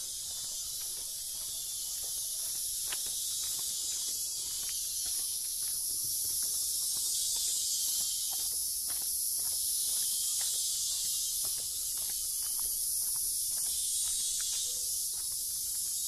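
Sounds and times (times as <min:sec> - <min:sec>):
faint footsteps on paving: 0:00.0 - 0:16.0
insects chirping chorus: 0:00.0 - 0:16.0.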